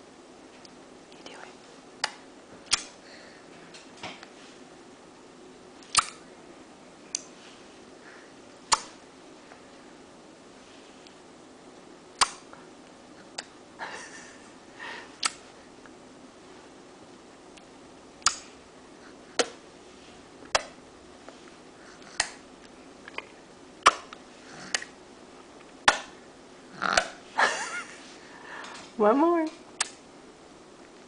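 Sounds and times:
baby clicking mouth: 2.0s - 2.9s, 5.9s - 6.2s, 18.2s - 18.4s.

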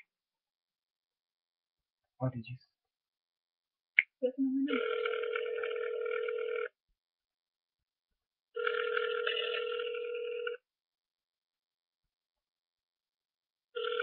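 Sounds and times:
phone ringback tone: 4.7s - 6.8s, 8.6s - 10.6s, 13.8s - 14.0s.

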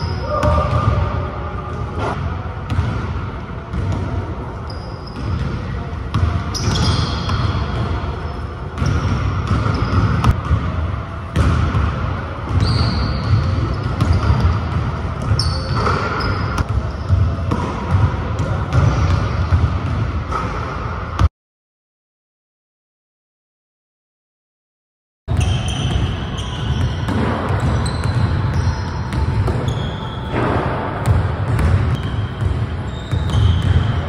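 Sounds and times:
basketball bouncing on gym floor: 1.7s - 8.1s, 8.8s - 21.3s, 25.3s - 34.0s
sneakers squeaking on court: 3.7s - 10.6s, 12.5s - 18.1s, 25.3s - 34.0s.

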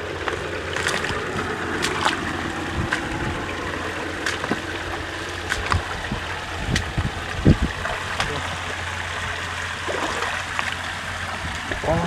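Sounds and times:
creek water trickling: 0.0s - 12.0s
low steady rumble: 0.0s - 12.0s.

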